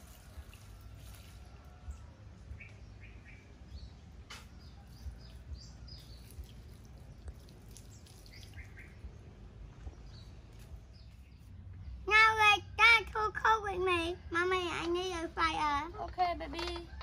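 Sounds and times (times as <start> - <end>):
small birds chirping: 1.9 - 12.1.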